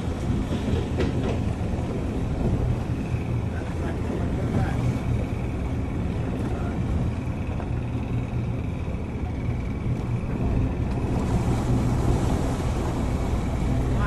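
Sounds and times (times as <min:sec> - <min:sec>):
boat engine humming: 0:00.0 - 0:14.0
water: 0:00.0 - 0:14.0
wind: 0:00.0 - 0:14.0.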